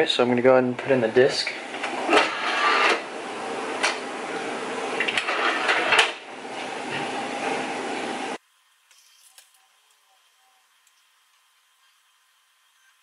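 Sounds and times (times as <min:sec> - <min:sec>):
steady hiss: 0:08.3 - 0:13.0.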